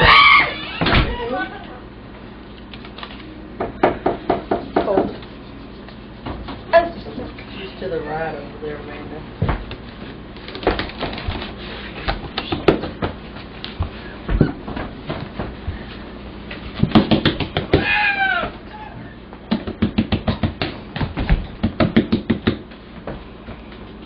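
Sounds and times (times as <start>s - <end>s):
fingers tapping on hard floor: 16.8s - 17.9s, 19.5s - 23.2s.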